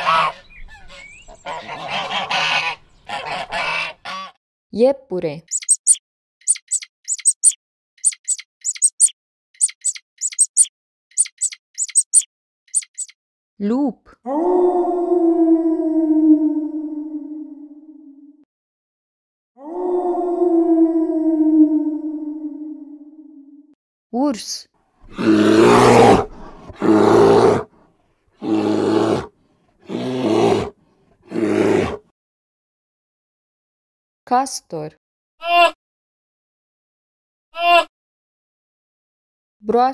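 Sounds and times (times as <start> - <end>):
rabbit clicking: 5.5 - 13.1
bear roaring: 25.1 - 27.7, 28.4 - 32.0.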